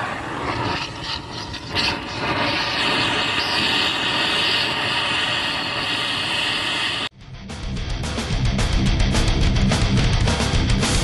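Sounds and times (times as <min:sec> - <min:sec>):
torch flame hissing: 0:00.0 - 0:07.1.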